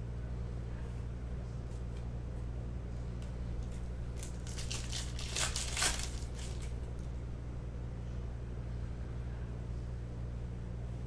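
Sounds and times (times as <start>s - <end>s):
steady low hum: 0.0s - 11.0s
foil wrapper crinkling and tearing: 4.1s - 7.1s.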